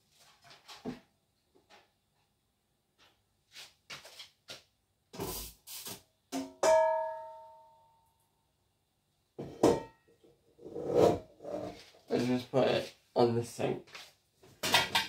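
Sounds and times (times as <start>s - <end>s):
metal cookware knocks and clunks: 6.3s - 7.3s, 9.4s - 10.1s, 14.6s - 15.0s
metal pan clanging and ringing: 6.4s - 7.6s, 9.5s - 10.0s.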